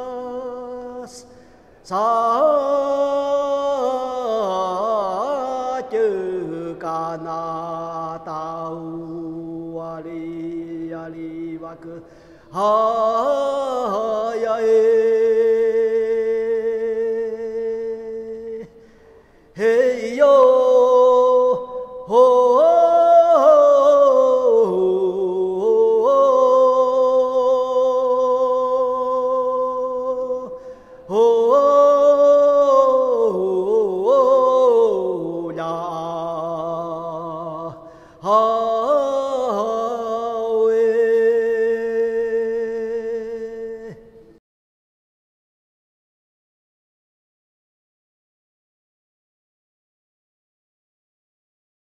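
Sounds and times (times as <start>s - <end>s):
solo voice chanting: 0.0s - 44.4s
breaths: 1.2s - 1.8s, 12.0s - 12.6s, 18.7s - 19.6s, 30.5s - 31.1s, 37.7s - 38.3s.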